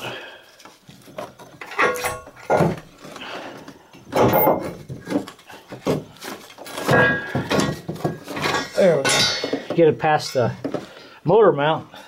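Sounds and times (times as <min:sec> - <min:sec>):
metal part thunks and clanks: 0:01.6 - 0:02.9, 0:04.1 - 0:05.2, 0:06.8 - 0:09.7.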